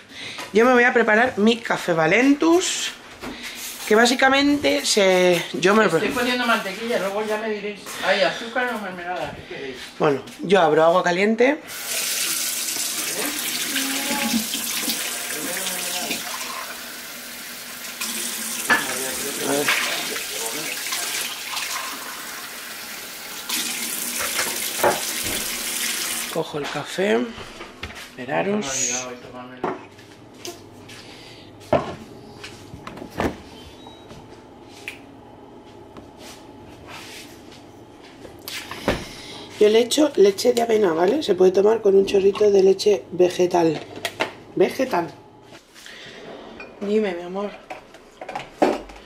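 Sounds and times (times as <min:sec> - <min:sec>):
water running from tap: 0:11.7 - 0:26.4.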